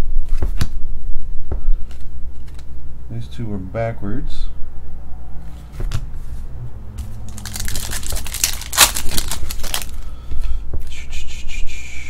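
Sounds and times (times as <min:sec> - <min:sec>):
foil wrapper crinkling: 0:07.3 - 0:10.1.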